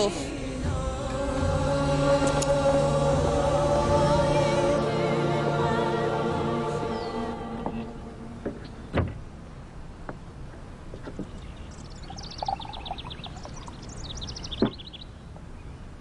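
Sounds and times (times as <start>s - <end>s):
small birds twittering: 6.8s - 9.1s, 10.9s - 16.0s
sharp knocks: 8.4s - 9.2s.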